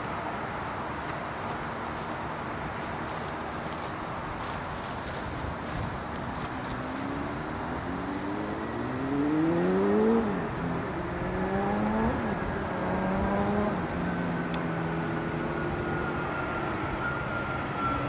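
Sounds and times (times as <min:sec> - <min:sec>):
jet engine whine: 0:00.0 - 0:18.0
engine revving up through gears: 0:06.4 - 0:18.0.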